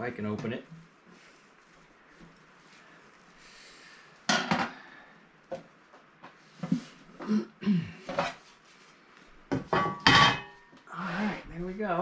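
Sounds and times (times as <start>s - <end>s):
metal cover clanking and scraping: 9.8s - 10.6s.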